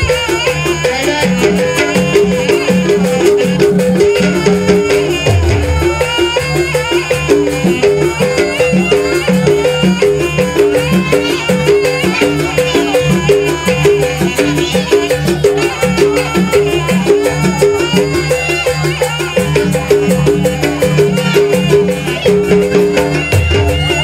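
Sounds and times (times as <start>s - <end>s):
drum strokes: 0.0s - 24.0s
shrill reed pipe melody: 0.0s - 24.0s.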